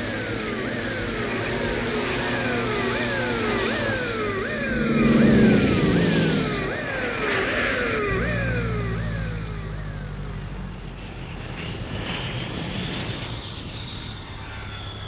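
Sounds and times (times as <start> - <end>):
police siren wailing: 0.0 - 11.1
aircraft engines droning: 0.0 - 15.0
rushing swell: 1.5 - 10.0.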